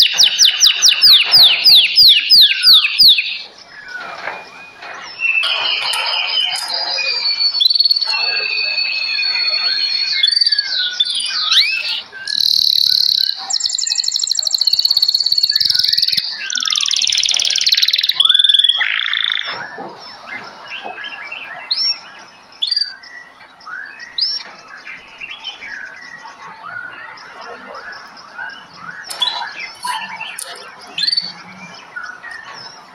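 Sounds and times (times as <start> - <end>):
songbirds singing and chirping: 0.0 - 32.9
buzzy pulsing bird trill: 5.0 - 19.5.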